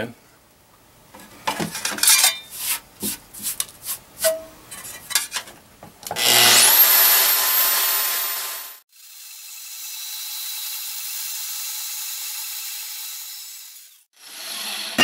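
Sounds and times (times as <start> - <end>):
metal sheet knocks and scrapes: 1.5 - 3.6
bandsaw blade cutting metal: 6.1 - 15.0
bandsaw whine: 6.2 - 8.8.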